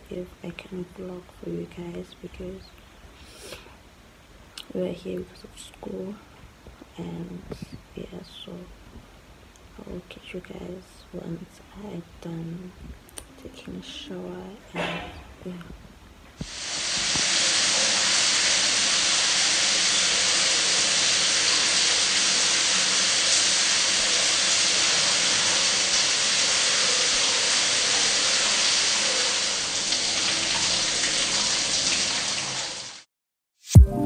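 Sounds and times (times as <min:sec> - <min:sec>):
shower water spraying: 0:16.4 - 0:33.0.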